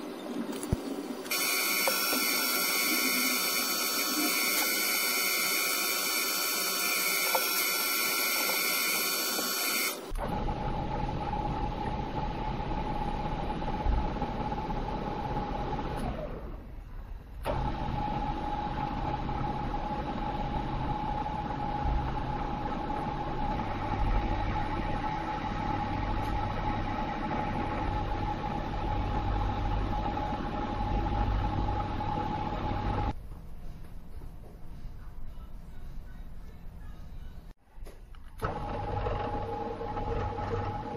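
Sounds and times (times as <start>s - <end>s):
drill motor whining: 1.3s - 11.6s.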